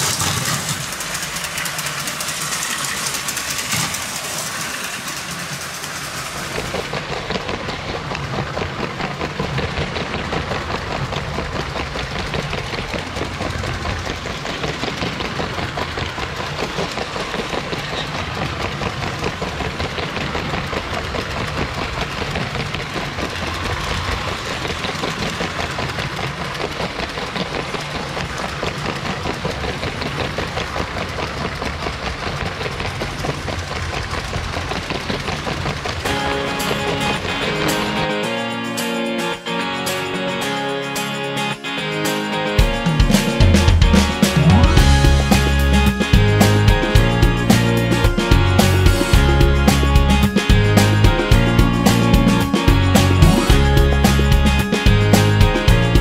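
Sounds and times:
toy train motors rattling: 0.0 - 41.6.

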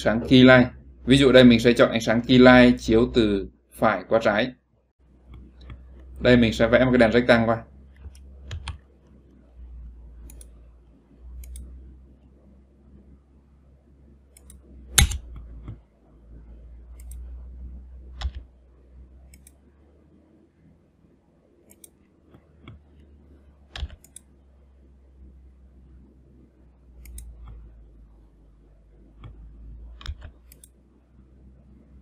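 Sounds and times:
low steady hum: 0.0 - 32.0
computer mouse clicks: 7.9 - 9.2, 10.2 - 10.6, 11.4 - 11.8, 14.3 - 15.8, 16.9 - 17.3, 18.2 - 18.5, 19.3 - 19.6, 21.6 - 23.1, 23.7 - 24.4, 27.0 - 27.7, 29.2 - 30.8.

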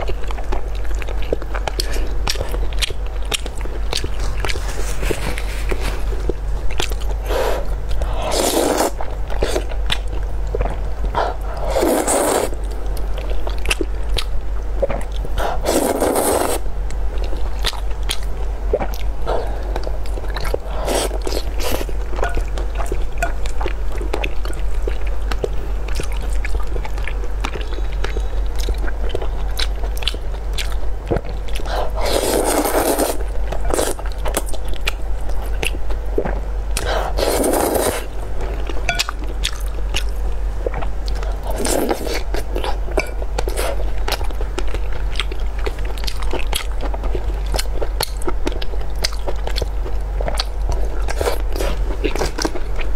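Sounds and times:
steady low hum: 0.0 - 52.9
wet chewing: 0.0 - 52.9
noodles slurped: 7.3 - 9.7, 11.2 - 12.6, 15.4 - 16.6, 31.6 - 34.0, 36.2 - 38.1.

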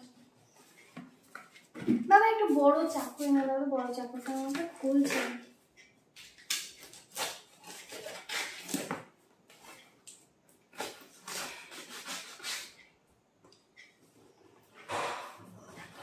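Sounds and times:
knife slitting packing tape: 6.2 - 9.1, 10.7 - 12.8.

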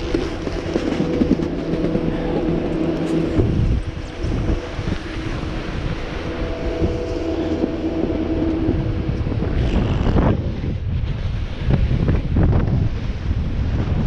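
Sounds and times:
snowboard scraping over snow: 0.0 - 7.8
chairlift machinery hum: 0.0 - 13.8
wind buffeting microphone: 0.0 - 14.0.

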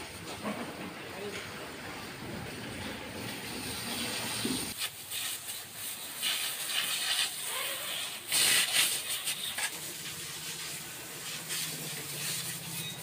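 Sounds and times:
pressure washer spray hissing: 4.4 - 13.0.

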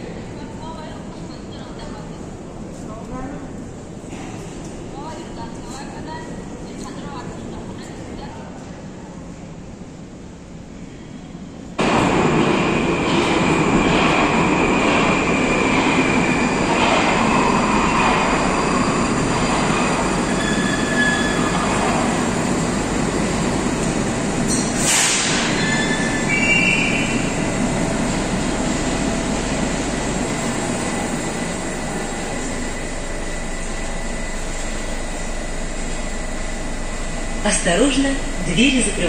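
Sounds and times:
metro train braking: 9.3 - 39.0
wheel squeal on rails: 18.5 - 21.7, 24.5 - 27.3.

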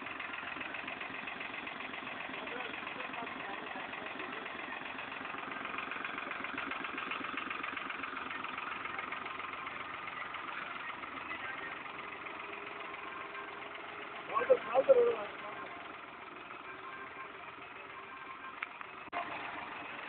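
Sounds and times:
tractor diesel engine under load: 0.0 - 20.0.

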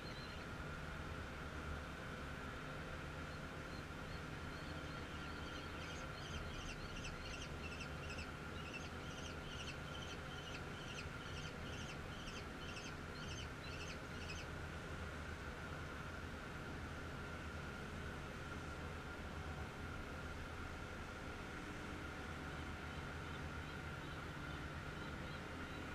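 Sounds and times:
steady background hum: 0.0 - 25.9
kestrel calling: 3.7 - 14.5.

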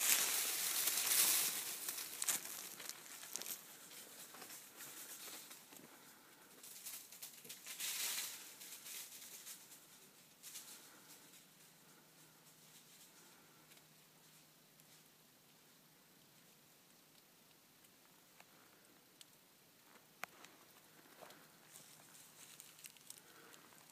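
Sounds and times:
dry leaves crunching and rustling: 0.0 - 5.5, 7.6 - 9.7, 21.7 - 23.9.

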